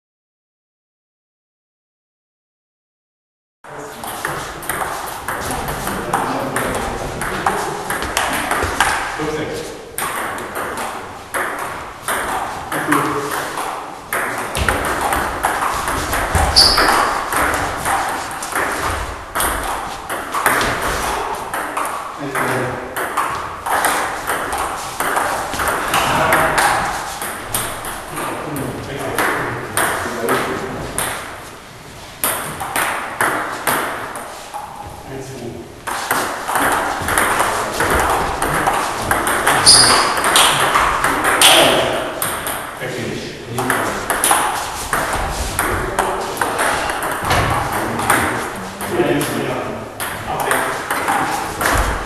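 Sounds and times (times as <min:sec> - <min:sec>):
distant table tennis clicks: 0:35.8 - 0:42.8, 0:43.6 - 0:45.8.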